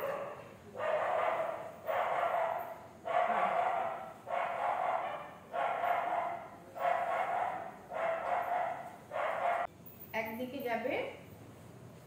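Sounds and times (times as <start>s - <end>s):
dog barking: 0.0s - 9.7s.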